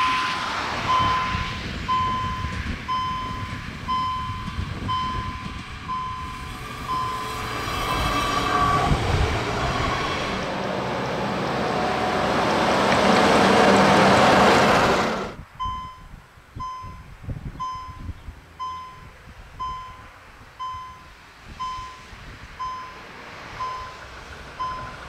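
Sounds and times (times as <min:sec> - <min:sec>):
level crossing warning beeps: 0:00.0 - 0:09.1, 0:15.6 - 0:24.0, 0:24.6 - 0:25.0
train rushing past: 0:00.0 - 0:15.4, 0:23.0 - 0:25.0.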